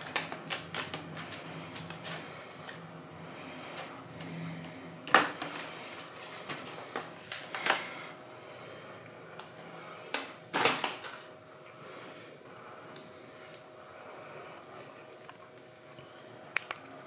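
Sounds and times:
kitchen knocks and clatters: 0:05.1 - 0:05.8.

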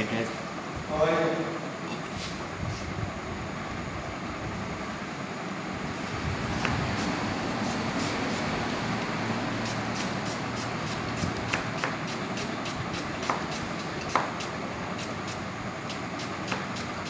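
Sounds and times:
knife dicing on cutting board: 0:13.2 - 0:14.5.

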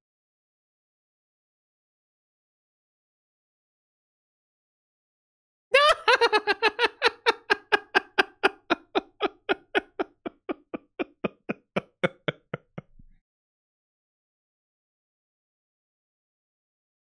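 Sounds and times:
high-pitched laughter: 0:05.8 - 0:12.9.

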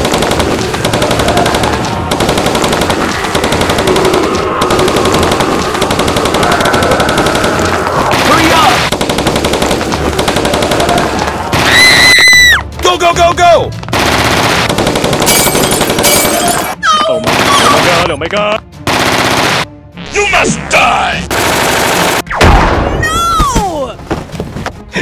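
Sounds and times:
machine-gun fire: 0:00.0 - 0:11.8, 0:13.9 - 0:16.5, 0:17.2 - 0:18.0, 0:18.9 - 0:19.7, 0:21.3 - 0:22.8.

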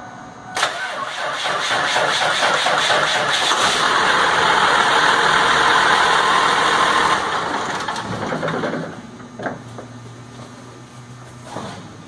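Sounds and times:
diesel engine running: 0:00.6 - 0:09.0.

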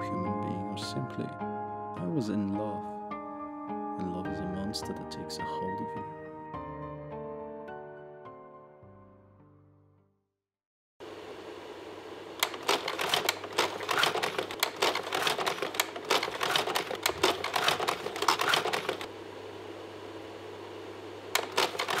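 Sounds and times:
steady low hum: 0:11.0 - 0:22.0
rapid irregular clicking: 0:12.4 - 0:19.1, 0:21.4 - 0:22.0.

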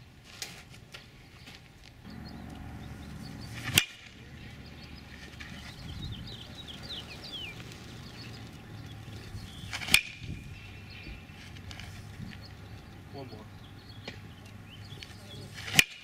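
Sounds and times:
birds chirping: 0:00.9 - 0:16.0
bat cracking a baseball: 0:03.6 - 0:04.3, 0:09.6 - 0:10.6, 0:15.6 - 0:16.0.

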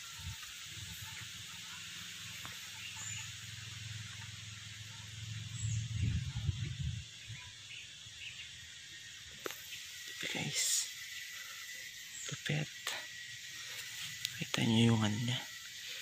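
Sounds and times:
faint bird chirps: 0:00.0 - 0:15.9
steady high hiss: 0:00.0 - 0:16.0
low rumble: 0:05.2 - 0:07.5.

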